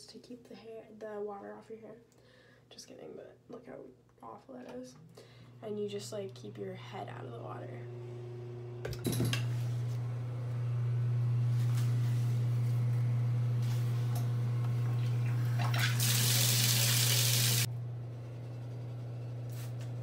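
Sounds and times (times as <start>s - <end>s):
shower water running onto tile: 15.0s - 17.7s.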